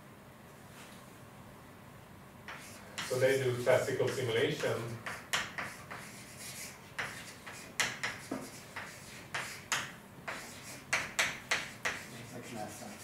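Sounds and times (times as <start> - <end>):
pen or chalk scratching on board: 2.5 - 13.0.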